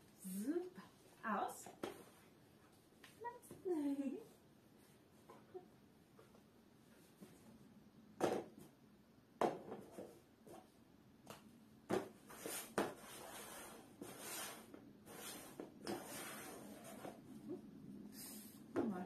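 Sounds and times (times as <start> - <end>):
cups scraping on a board: 12.3 - 17.2.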